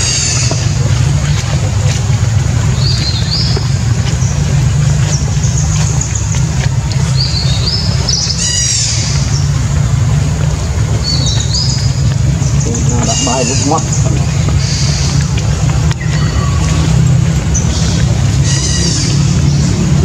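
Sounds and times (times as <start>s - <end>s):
steady low hum: 0.0s - 20.0s
high chirping calls: 11.0s - 15.2s.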